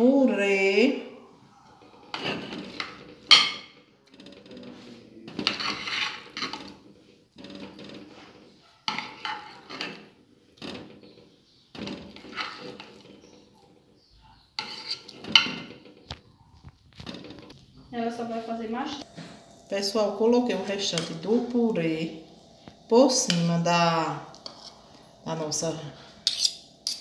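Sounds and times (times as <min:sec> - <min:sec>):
metal spoon scraping glass dish: 0:04.7 - 0:06.8, 0:08.9 - 0:10.0, 0:12.1 - 0:13.4, 0:14.6 - 0:15.7, 0:22.9 - 0:27.0.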